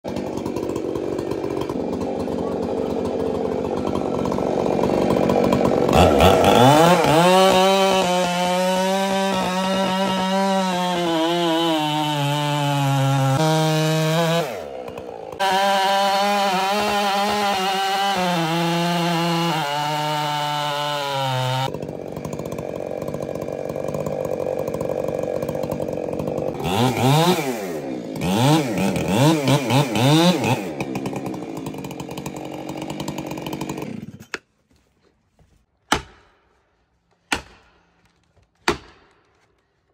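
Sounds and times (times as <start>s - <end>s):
chainsaw cutting tree trunk: 0.0s - 34.5s, 35.8s - 39.6s.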